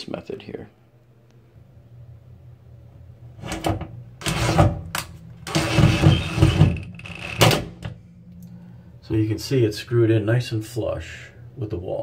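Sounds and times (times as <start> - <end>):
cordless drill driving anchor: 5.4 - 7.6.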